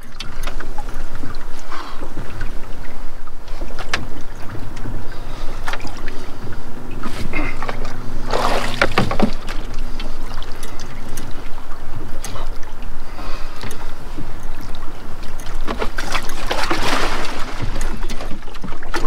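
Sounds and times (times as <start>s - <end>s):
water splashing against boat: 0.0s - 19.0s
knocks on boat hull: 8.4s - 9.6s.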